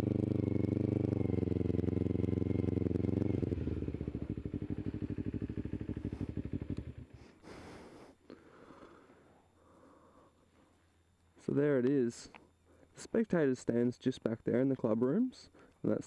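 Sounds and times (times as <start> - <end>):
motorcycle engine idling: 0.0 - 10.6.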